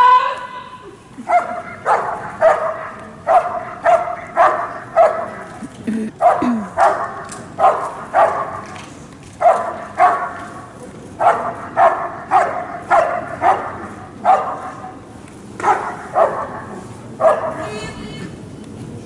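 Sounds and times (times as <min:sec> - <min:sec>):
dog barking: 0:01.3 - 0:05.6, 0:06.2 - 0:08.8, 0:09.4 - 0:10.5, 0:11.2 - 0:14.9, 0:15.6 - 0:17.7.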